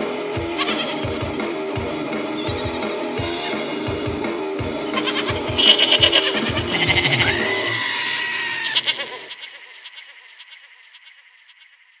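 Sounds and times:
music drums: 0:00.0 - 0:08.1
bleating goat-like sound: 0:00.4 - 0:01.3, 0:02.4 - 0:04.0, 0:04.9 - 0:10.0.

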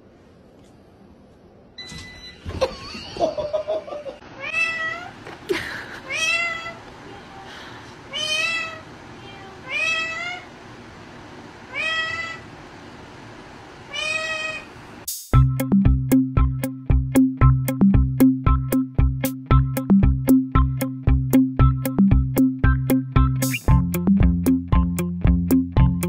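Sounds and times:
parakeet meow-like calls: 0:11.7 - 0:12.5, 0:13.9 - 0:14.7.

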